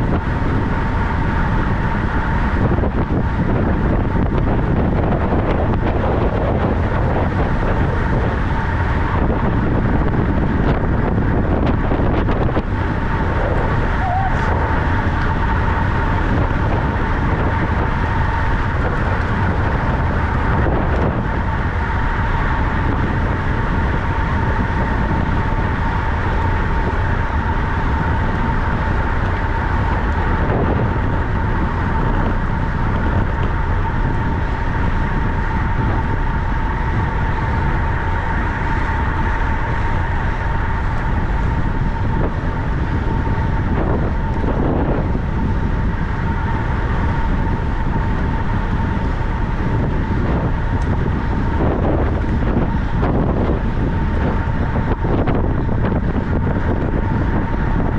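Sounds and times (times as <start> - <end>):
bicycle rolling: 0.0 - 57.9
constant high whine: 0.0 - 57.9
wind on microphone: 0.0 - 57.9.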